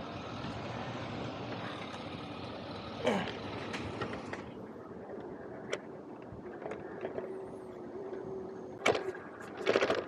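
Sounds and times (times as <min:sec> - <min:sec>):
faint steady hum: 0:00.0 - 0:10.0
bike clicks and rattles: 0:03.2 - 0:10.0.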